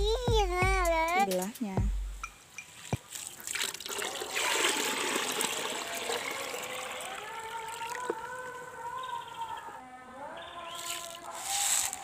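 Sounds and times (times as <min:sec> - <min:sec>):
water pouring into a tub: 0:03.1 - 0:08.6.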